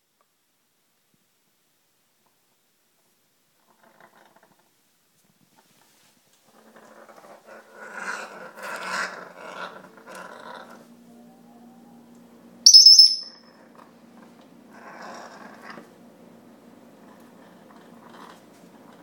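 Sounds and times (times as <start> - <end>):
parrot growling: 6.5 - 10.9, 14.7 - 15.9
high-pitched parrot whistle: 12.7 - 13.4.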